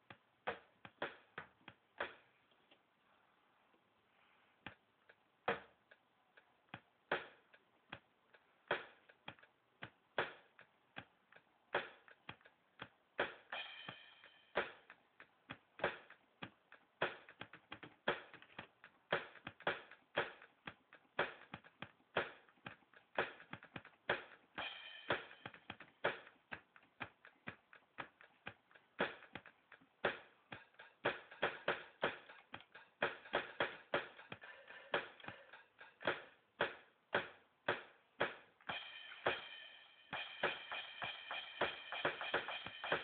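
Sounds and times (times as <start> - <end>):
drum kit beat: 0.0 - 2.4, 4.7 - 43.0.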